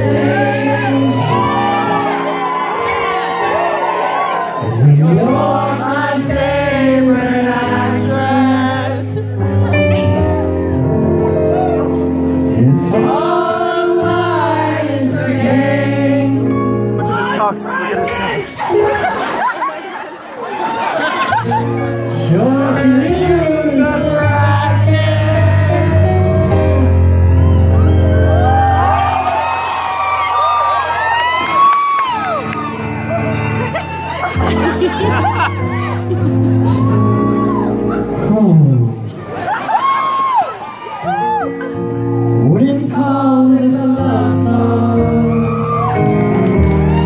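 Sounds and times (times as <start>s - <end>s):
man singing: 4.6s - 9.3s, 12.5s - 18.3s, 22.0s - 27.4s, 42.4s - 46.0s.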